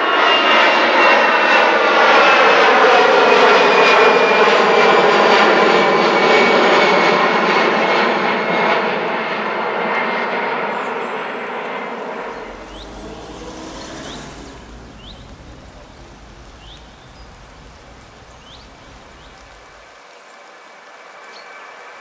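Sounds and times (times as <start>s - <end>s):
jet airliner noise: 0.0s - 19.9s
bird chirping: 10.7s - 19.9s.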